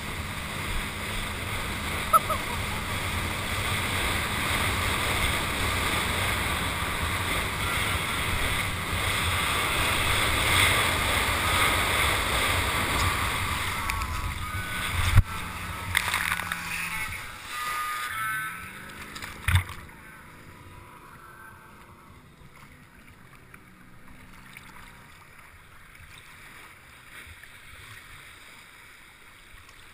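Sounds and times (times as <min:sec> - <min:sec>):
steady low hum: 0:00.0 - 0:27.6
water rushing under a board: 0:00.0 - 0:29.9.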